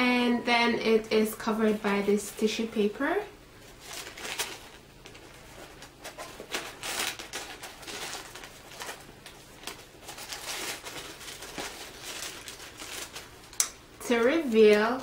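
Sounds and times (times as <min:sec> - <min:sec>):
tissue paper rustling and crinkling: 0:03.6 - 0:15.0.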